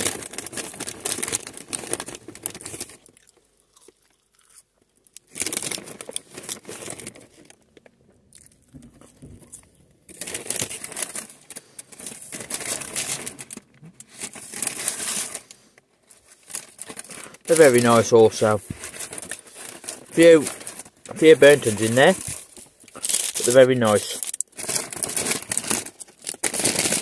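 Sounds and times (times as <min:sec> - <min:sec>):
paper packaging crinkling: 0:00.0 - 0:03.4, 0:05.2 - 0:27.0
crunchy chewing of fries: 0:00.0 - 0:17.9.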